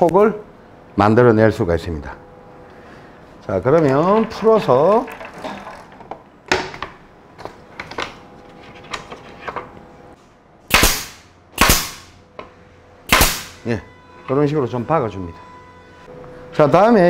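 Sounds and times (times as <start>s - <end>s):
pneumatic staple gun firing: 10.7s - 12.1s, 13.1s - 13.6s.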